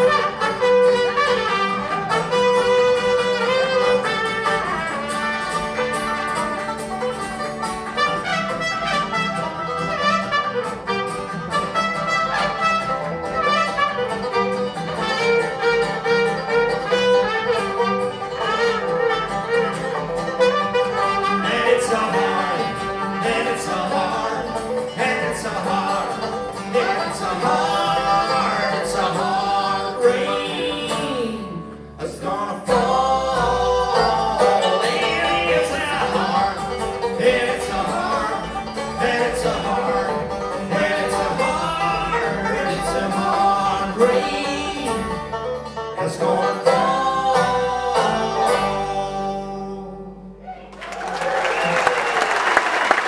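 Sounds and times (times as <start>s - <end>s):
trumpet playing: 0.0s - 25.0s
folk band playing: 0.0s - 53.0s.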